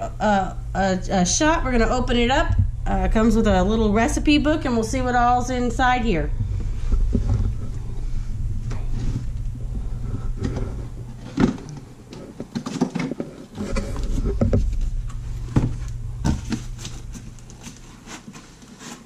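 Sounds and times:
low hum: 0.0 - 18.6
plastic and styrofoam rustling: 8.7 - 19.0
cardboard box scraping and knocking: 12.5 - 14.8.

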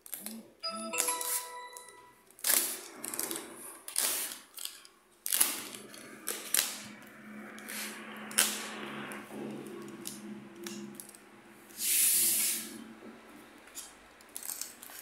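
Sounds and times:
plastic tearing and crinkling: 2.4 - 6.8, 13.8 - 15.0.

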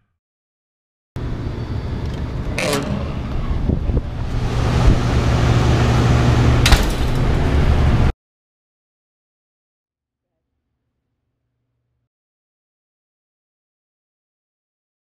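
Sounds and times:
low steady rumble: 1.2 - 8.1.

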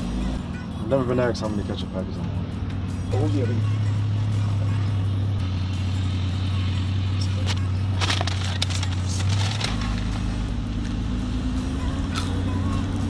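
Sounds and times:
car engine idling: 0.0 - 13.0
crackling and rustling: 7.4 - 10.3.

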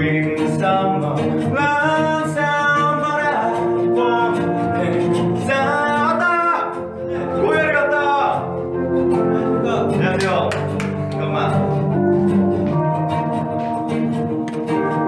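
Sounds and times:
young man singing: 0.0 - 7.9
instrumental backing: 0.0 - 15.0.

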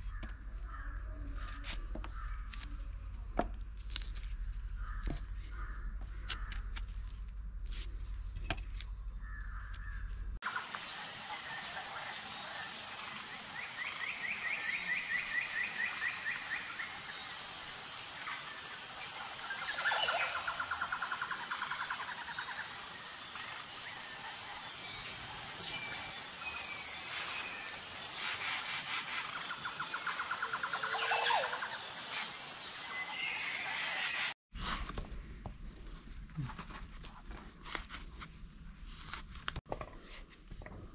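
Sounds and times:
birds calling and trilling: 8.9 - 34.4
steady high-pitched whine: 10.5 - 34.4.

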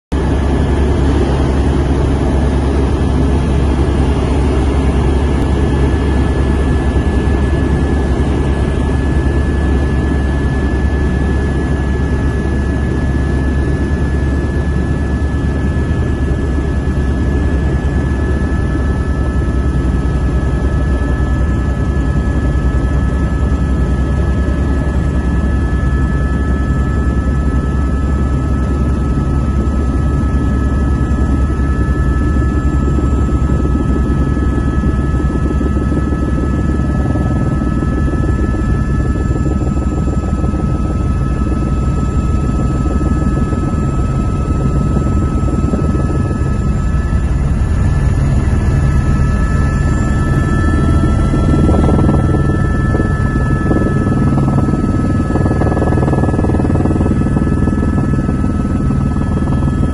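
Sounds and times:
helicopter rotor and engine drone: 0.1 - 59.9
lower whine: 0.2 - 59.9
thin steady whine: 0.2 - 59.9.

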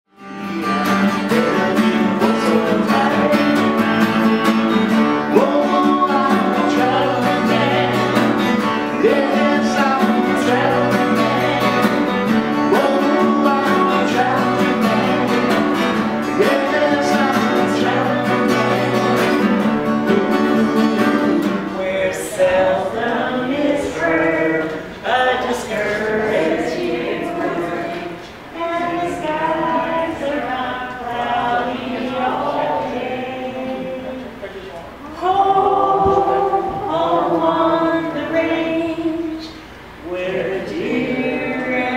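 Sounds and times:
acoustic guitar strumming: 0.1 - 34.4
person singing: 0.2 - 34.4, 35.0 - 41.9.

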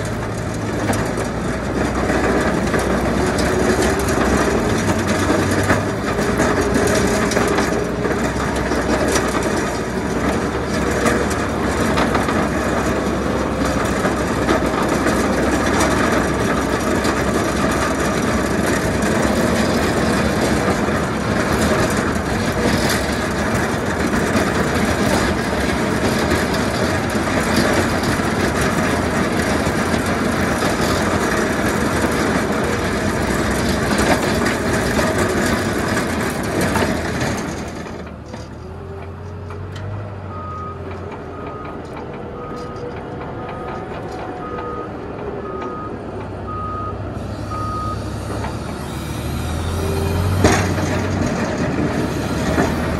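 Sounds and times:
snow plow blade scraping: 0.0 - 52.9
tractor engine running: 0.0 - 52.9
reversing alarm beeping: 40.3 - 49.4.

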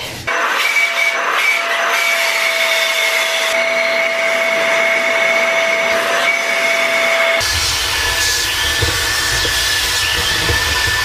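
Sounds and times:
vacuum cleaner running: 0.3 - 11.0.

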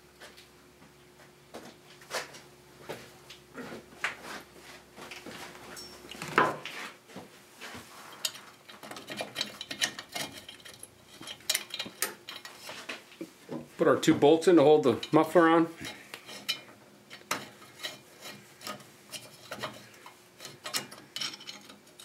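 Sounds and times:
metal parts clinking: 8.2 - 12.7, 18.6 - 22.0.

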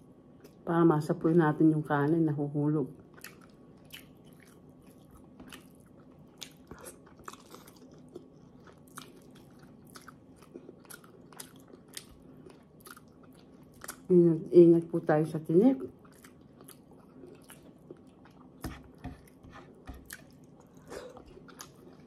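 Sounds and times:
faint steady hum: 0.0 - 22.0
person chewing: 3.1 - 14.1, 16.0 - 22.0.

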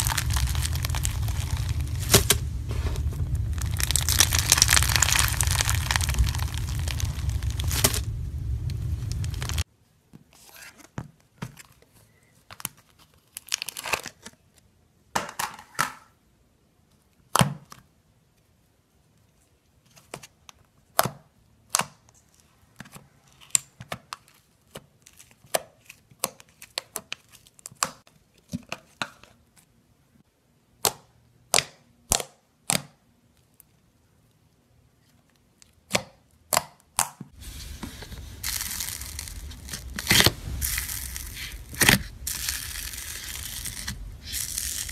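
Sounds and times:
foamy slime crackling: 0.0 - 9.6, 37.4 - 44.9
sticky slime pops and clicks: 30.8 - 33.0.

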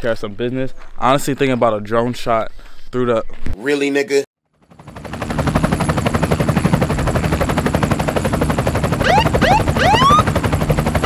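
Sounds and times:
helicopter rotor chopping: 4.6 - 11.0
rising synth glides: 9.0 - 10.3.

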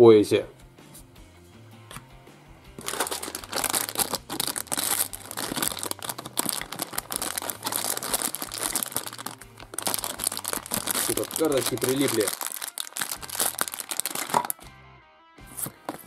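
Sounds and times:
plastic wrapper crinkling: 2.8 - 14.7.

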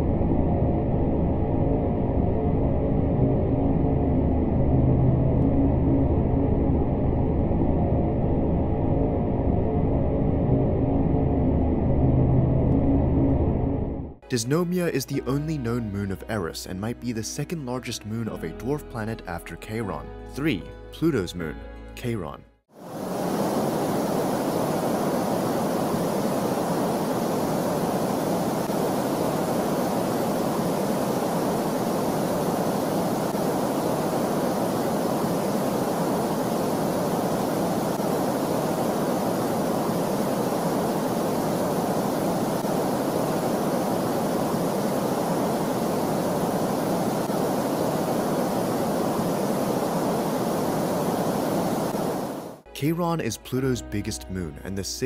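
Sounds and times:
steady rushing noise: 22.7 - 52.6
faint hiss: 22.8 - 52.6.

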